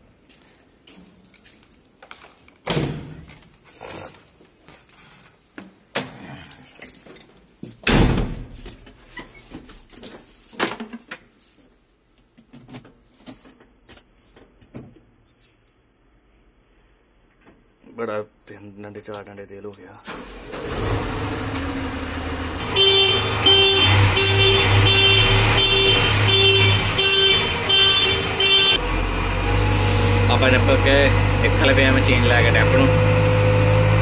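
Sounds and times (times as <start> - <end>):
warning buzzer tone: 14.6 - 21.7, 22.6 - 28.8.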